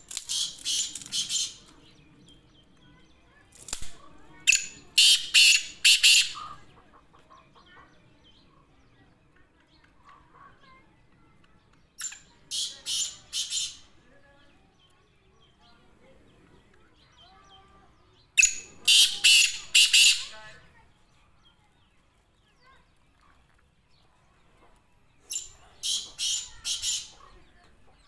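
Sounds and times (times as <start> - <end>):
bird calling short notes: 18.4 - 20.4.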